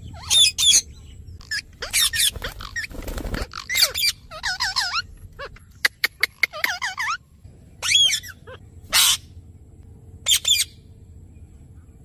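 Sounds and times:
parakeets squawking and chattering: 0.0s - 7.2s, 7.8s - 9.4s, 10.2s - 10.8s.

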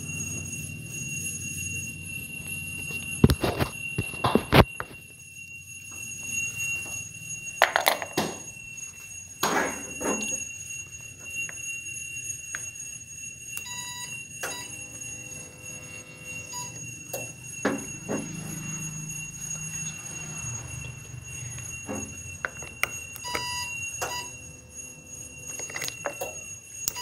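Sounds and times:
high-pitched electronic tone: 13.7s - 27.0s.

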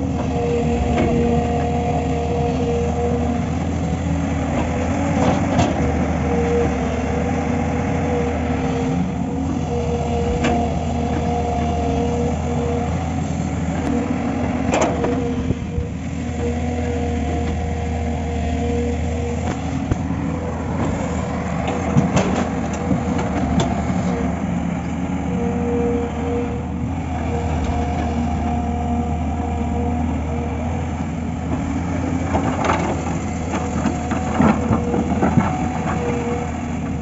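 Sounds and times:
excavator diesel engine running: 0.0s - 37.0s.

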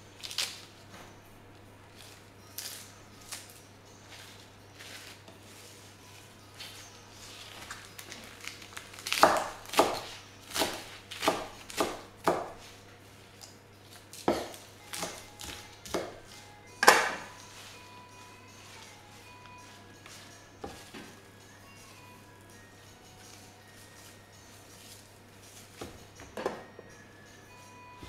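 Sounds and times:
knife chopping on wooden board: 9.1s - 12.6s, 14.2s - 17.3s.

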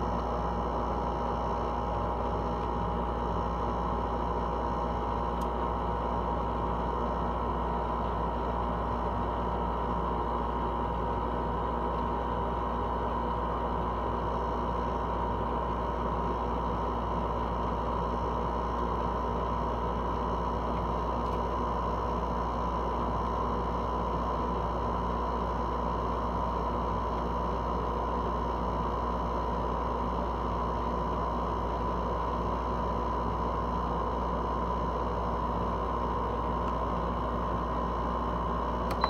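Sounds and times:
air conditioner humming: 0.0s - 39.0s.

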